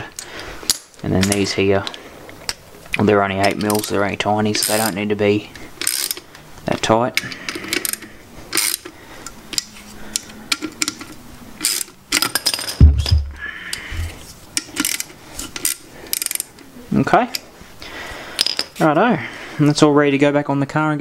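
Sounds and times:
hand ratchet clicking: 5.8 - 6.2, 7.5 - 8.9, 9.5 - 12.3, 14.6 - 16.6
heavy low thump: 12.8 - 14.1.

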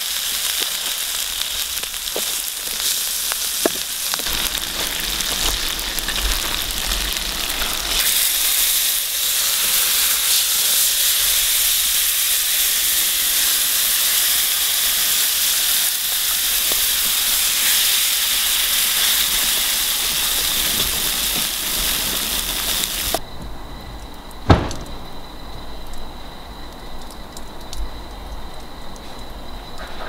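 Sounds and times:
liquid hissing in hot tray: 0.0 - 23.2.

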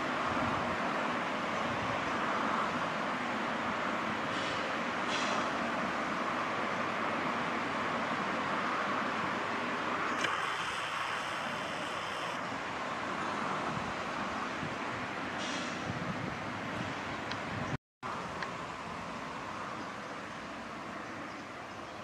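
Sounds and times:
train rumbling past: 0.0 - 17.3.

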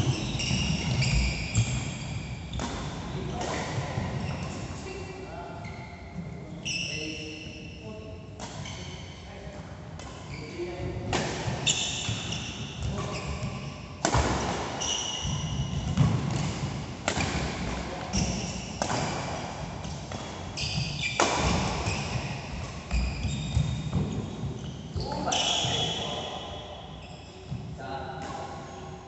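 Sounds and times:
shoes squeaking on court: 0.0 - 4.6, 11.6 - 13.8, 18.1 - 27.7
racket striking shuttlecock: 14.0 - 24.1.

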